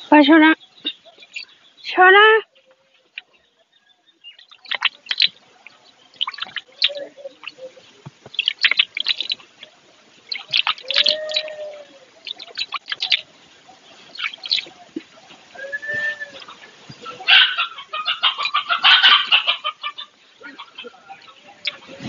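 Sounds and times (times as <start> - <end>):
small birds chirping: 0.0 - 22.0
hen's drawn-out call: 10.5 - 13.2, 15.5 - 20.9.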